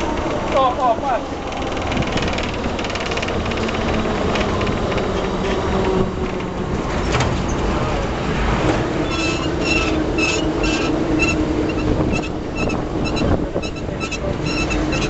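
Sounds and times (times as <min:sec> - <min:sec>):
tram motor hum: 0:00.0 - 0:15.0
tram wheels rumbling on rails: 0:00.0 - 0:15.0.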